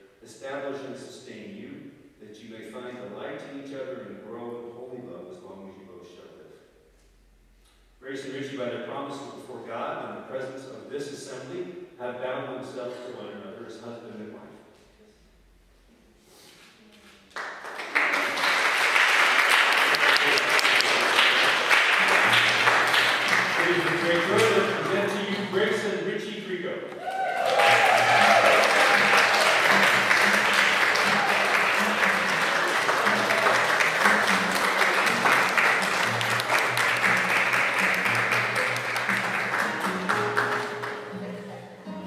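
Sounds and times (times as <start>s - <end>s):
congregation applauding: 17.3s - 25.9s, 27.0s - 41.2s
instrumental music low notes: 29.0s - 42.0s.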